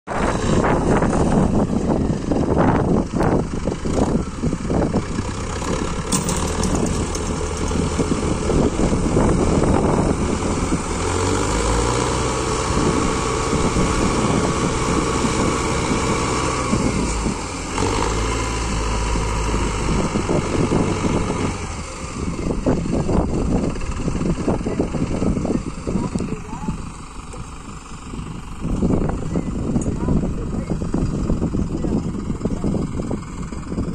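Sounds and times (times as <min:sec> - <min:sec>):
tractor diesel engines under load: 0:00.1 - 0:33.9.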